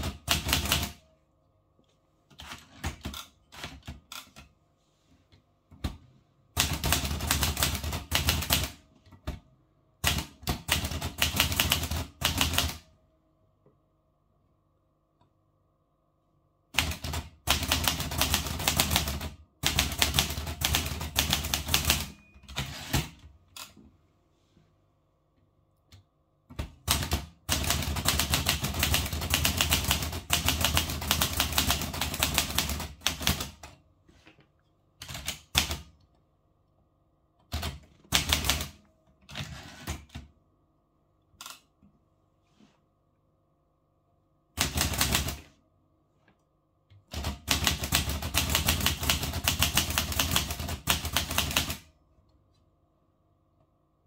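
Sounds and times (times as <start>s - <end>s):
manual typewriter keystrokes: 0.0s - 1.0s, 2.3s - 4.5s, 6.5s - 9.4s, 10.0s - 12.9s, 16.8s - 23.8s, 26.5s - 33.7s, 35.0s - 36.0s, 37.4s - 40.2s, 44.6s - 45.4s, 47.1s - 51.9s.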